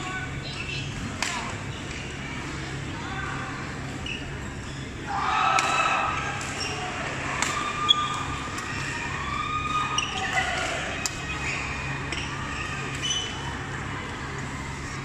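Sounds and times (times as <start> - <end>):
chatter and calls of voices: 0.0 - 15.0.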